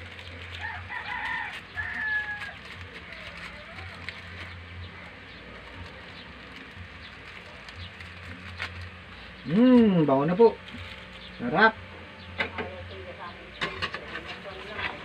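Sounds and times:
rooster crowing: 0:00.6 - 0:02.7.

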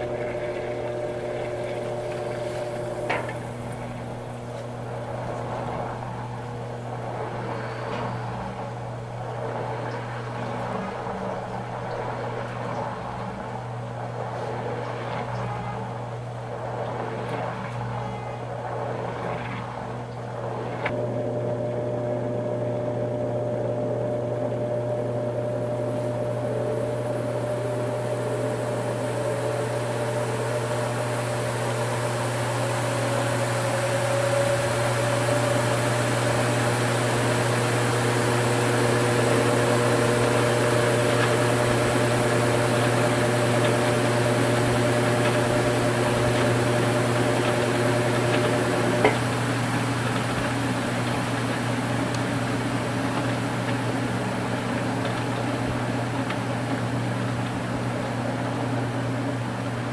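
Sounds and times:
faint whine: 0:00.0 - 0:56.9
washing machine motor and pump hum: 0:00.0 - 0:59.9.

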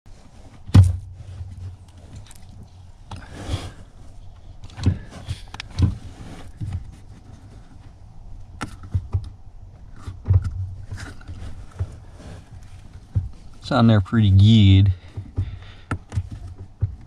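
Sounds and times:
car pedal clunks and knocks: 0:15.1 - 0:17.0.

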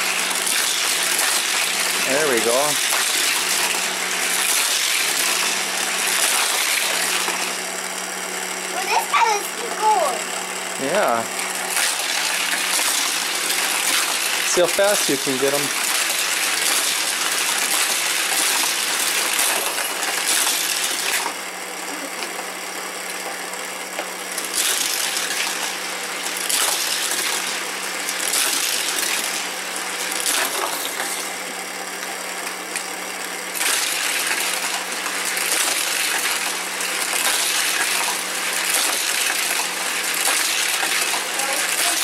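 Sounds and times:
toy track booster whirring: 0:00.0 - 0:42.0
toy cars rattling: 0:11.8 - 0:21.3, 0:33.6 - 0:42.0.

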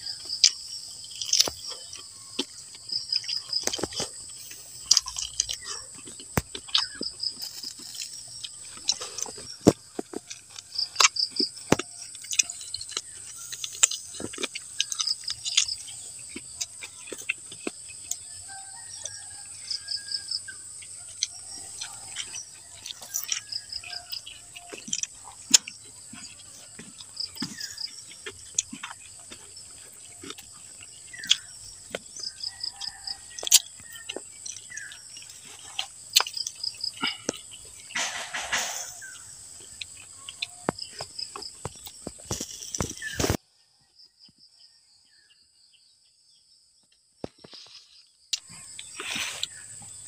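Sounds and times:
chewing and smacking: 0:00.0 - 0:43.4, 0:47.6 - 0:50.0
fingers handling food: 0:01.2 - 0:18.3
insect drone with pulsed chirps: 0:06.4 - 0:50.0.

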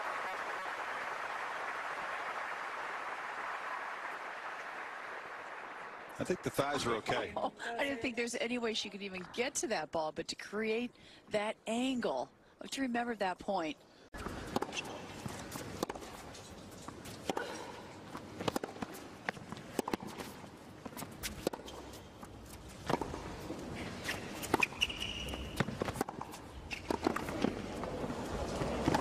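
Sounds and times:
tennis ball bouncing: 0:14.2 - 0:29.0
racket striking tennis ball: 0:14.5 - 0:16.4, 0:17.1 - 0:29.0.

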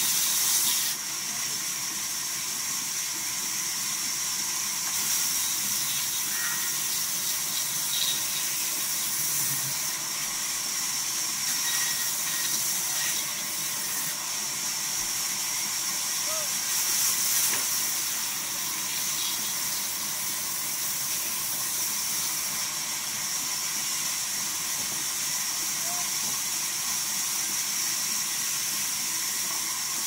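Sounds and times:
band saw cutting wood: 0:11.4 - 0:14.2.

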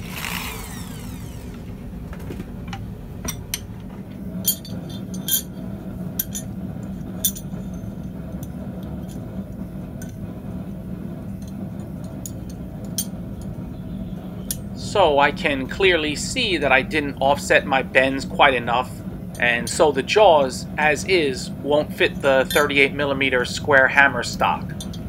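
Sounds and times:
steady low hum: 0:00.0 - 0:25.0
steel tongs clinking: 0:04.4 - 0:05.6, 0:07.2 - 0:09.2, 0:22.4 - 0:22.9, 0:24.7 - 0:25.0.

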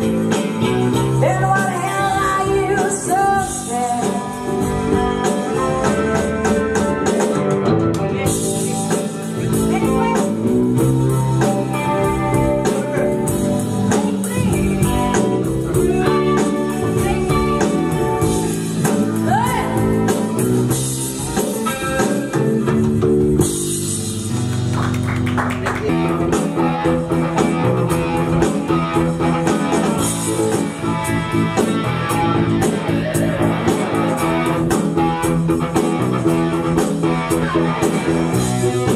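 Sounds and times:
bass guitar: 0:00.0 - 0:38.9
drum kit: 0:00.0 - 0:38.9
electric guitar: 0:00.0 - 0:38.9
woman singing: 0:01.2 - 0:07.1.

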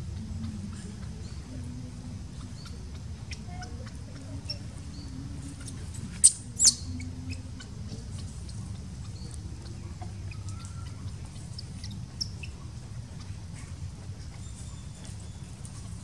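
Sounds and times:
faint chirps: 0:00.0 - 0:16.0
low outdoor rumble: 0:00.0 - 0:16.0
baby monkey shrill squeaks: 0:06.1 - 0:07.7.

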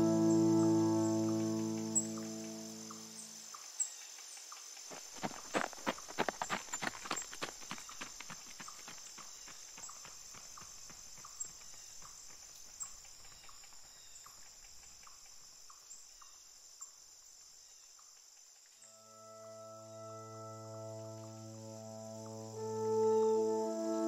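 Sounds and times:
held musical chord: 0:00.0 - 0:03.2, 0:18.9 - 0:24.0
crickets chirring: 0:00.0 - 0:24.0
hooves clip-clopping: 0:04.4 - 0:15.5.

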